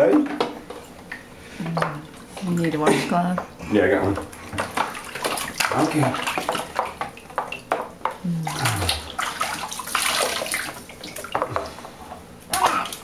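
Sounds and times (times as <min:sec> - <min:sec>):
bathwater splashing: 0:03.8 - 0:11.8, 0:12.4 - 0:13.0.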